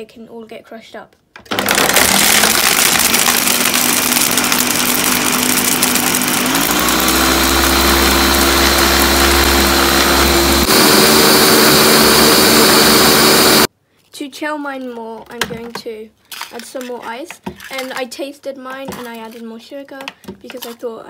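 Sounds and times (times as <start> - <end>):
blender crushing ice: 1.5 - 13.7.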